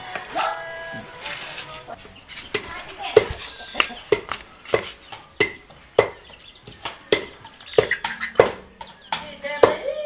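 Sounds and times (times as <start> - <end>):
cleaver chopping on wooden block: 4.1 - 6.2.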